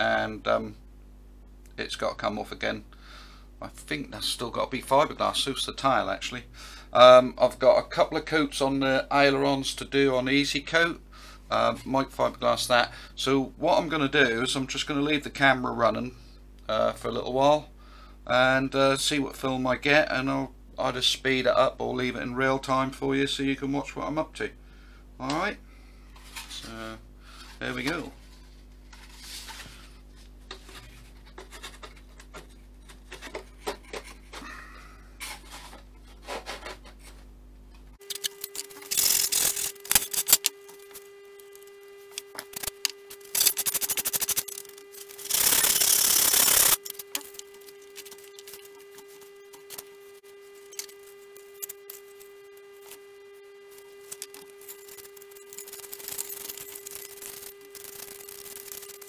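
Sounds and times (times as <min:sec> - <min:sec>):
electrical hum: 0:00.0 - 0:59.0
wood parts scraping and knocking: 0:30.5 - 0:34.4.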